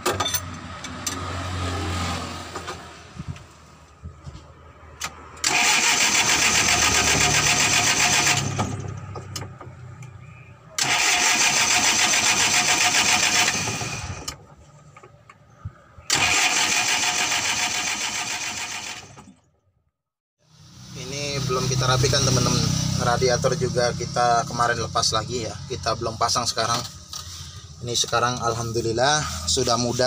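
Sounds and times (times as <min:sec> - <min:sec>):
diesel engine cranking on starter: 0:05.0 - 0:09.6, 0:10.8 - 0:14.6, 0:16.0 - 0:19.5.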